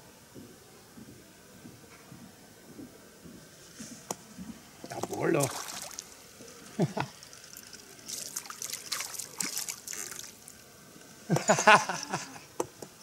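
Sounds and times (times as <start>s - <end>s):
fish splashing: 4.8s - 10.8s
water trickling and dripping: 4.8s - 11.2s.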